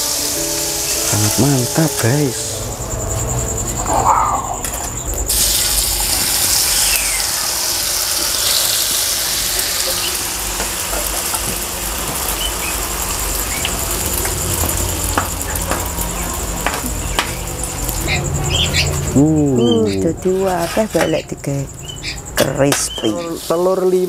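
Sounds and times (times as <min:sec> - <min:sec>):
oil popping and crackling: 0:05.2 - 0:18.0
batter sizzling in hot oil: 0:05.3 - 0:18.1.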